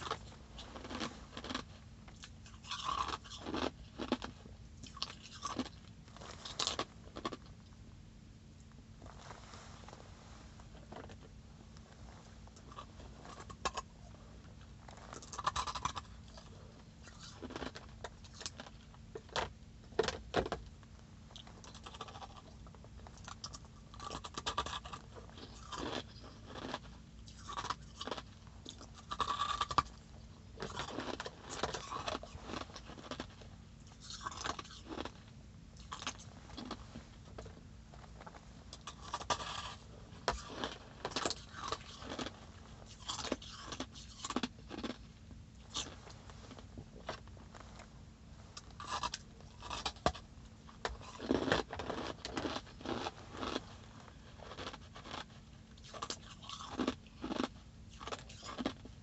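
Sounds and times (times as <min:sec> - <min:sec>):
person crunching ice: 0:00.0 - 0:07.4, 0:14.9 - 0:16.4, 0:17.0 - 0:19.5, 0:23.2 - 0:30.0, 0:30.6 - 0:33.4, 0:34.0 - 0:35.2, 0:35.8 - 0:36.8, 0:38.2 - 0:45.0, 0:48.6 - 0:50.1, 0:50.9 - 0:53.7, 0:54.3 - 0:58.9
faint steady hum: 0:00.0 - 0:59.0.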